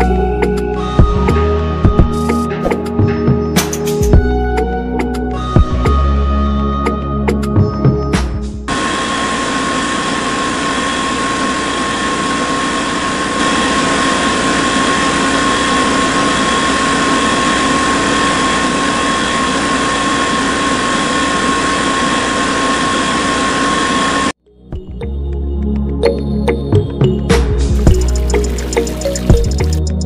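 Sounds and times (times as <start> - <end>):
small motor high whine: 8.7 - 24.4, 27.7 - 30.0.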